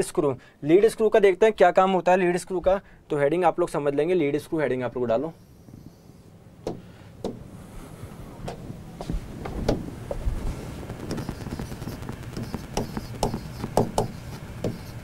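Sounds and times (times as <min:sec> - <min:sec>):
steady low hum: 0:02.4 - 0:15.0
pen tapping on whiteboard screen: 0:12.4 - 0:14.9.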